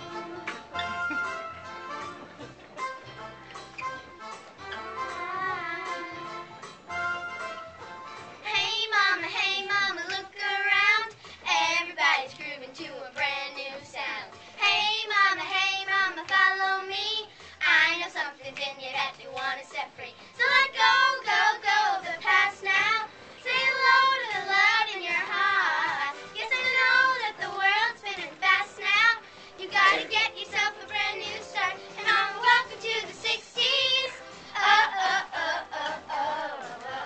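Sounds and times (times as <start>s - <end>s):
backing music: 0.0s - 37.0s
children singing: 20.4s - 37.0s.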